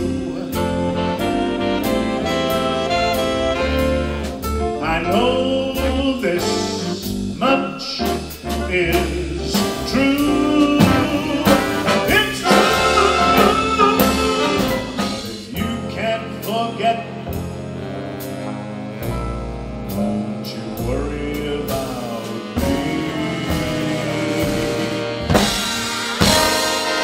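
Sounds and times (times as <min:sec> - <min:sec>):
man singing: 0:00.0 - 0:01.0, 0:04.8 - 0:17.4, 0:20.0 - 0:25.3
big band playing: 0:00.0 - 0:27.0.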